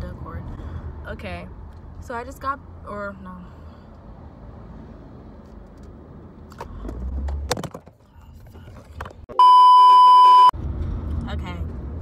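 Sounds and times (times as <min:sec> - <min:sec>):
electronic beep: 0:09.3 - 0:10.5.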